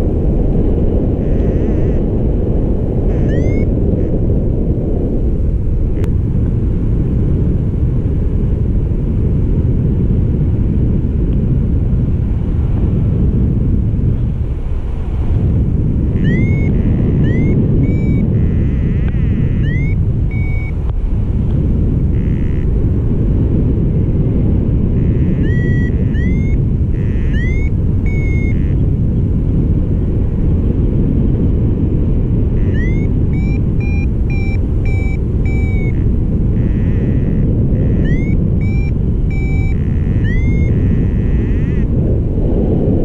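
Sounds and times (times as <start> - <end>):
wind rushing over microphone: 0.0 - 43.0
variometer beeping chirps: 1.2 - 2.1, 3.0 - 4.1, 16.1 - 20.9, 22.1 - 22.7, 25.0 - 28.8, 32.6 - 41.9.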